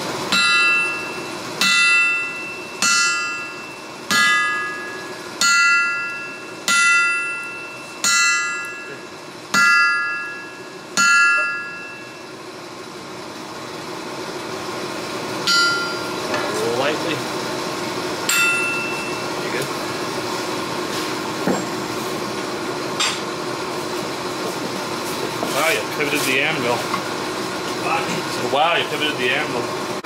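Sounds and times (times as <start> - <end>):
hammer striking steel on anvil: 0.3 - 12.3, 15.4 - 16.5, 18.2 - 19.6, 23.0 - 23.3.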